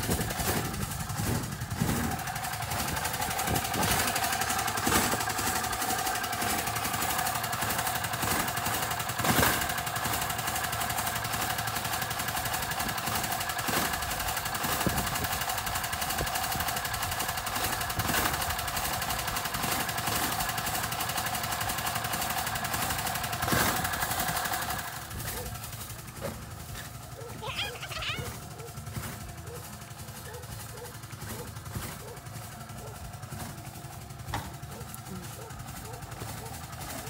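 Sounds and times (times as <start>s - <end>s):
shovels scraping and dumping dirt: 0.0s - 5.7s, 31.0s - 32.5s
vehicle engine idling: 0.0s - 37.0s.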